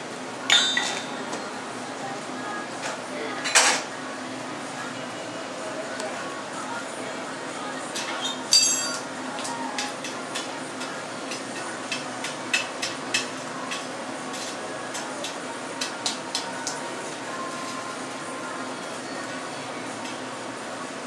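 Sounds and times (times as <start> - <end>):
metal tools clanking: 0.5 - 1.2, 8.5 - 9.0.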